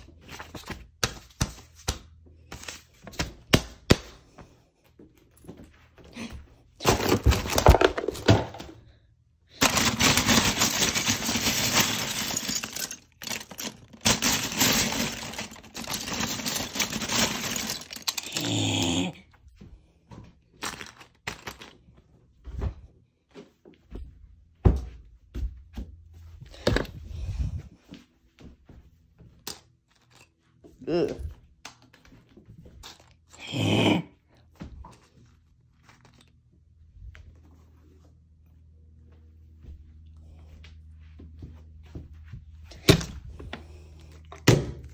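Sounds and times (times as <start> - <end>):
plastic bricks clattering: 6.8 - 8.9, 9.5 - 19.2, 20.6 - 21.9.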